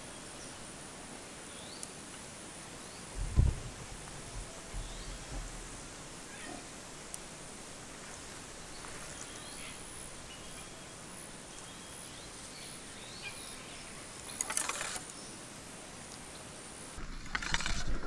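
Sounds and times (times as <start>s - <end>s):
birds chirping: 1.4s - 17.0s
rustling and clicks: 14.2s - 15.2s, 17.0s - 18.0s.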